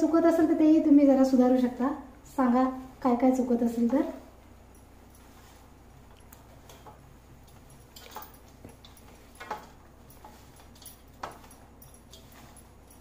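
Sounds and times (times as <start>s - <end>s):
dry mixture rustling in steel bowl: 7.8s - 13.0s.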